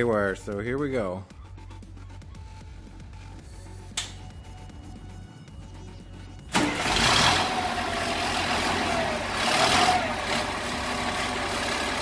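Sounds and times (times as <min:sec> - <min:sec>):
diesel truck engine running: 0:05.8 - 0:12.0.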